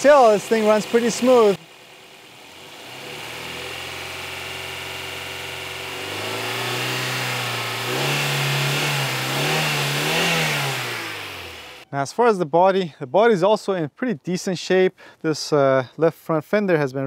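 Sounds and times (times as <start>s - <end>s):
car engine idling and revving: 0.0s - 11.9s.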